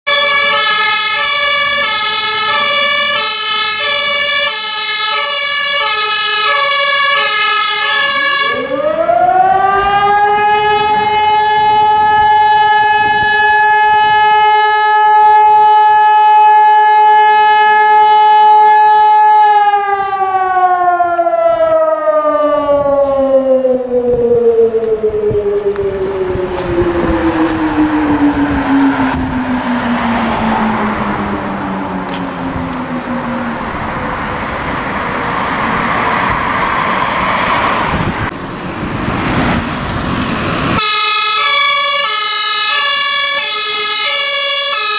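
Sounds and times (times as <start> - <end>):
winding alarm siren: 0.1 - 30.8, 40.8 - 44.9
fire engine two-tone siren: 0.1 - 44.9.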